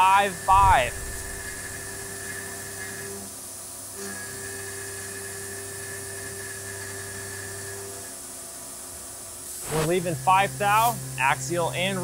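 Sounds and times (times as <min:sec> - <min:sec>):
low machine hum: 0:00.0 - 0:03.1, 0:09.6 - 0:12.0
mill spindle cutting whine: 0:00.0 - 0:03.3, 0:04.0 - 0:08.2, 0:09.6 - 0:12.0.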